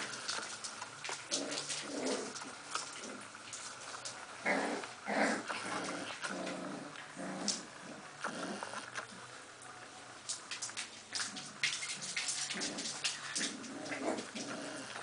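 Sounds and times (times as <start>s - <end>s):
puppies growling and yapping: 1.0s - 3.8s, 4.4s - 9.0s, 12.2s - 15.0s.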